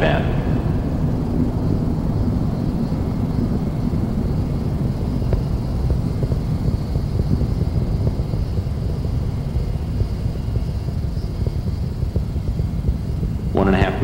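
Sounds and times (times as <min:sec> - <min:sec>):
rocket exhaust rumble with crackles: 0:00.0 - 0:14.0.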